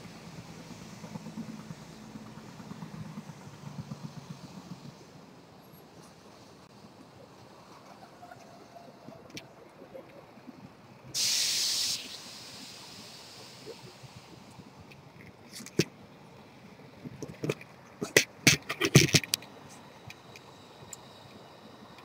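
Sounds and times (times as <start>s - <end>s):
sharp hiss: 11.1s - 14.8s.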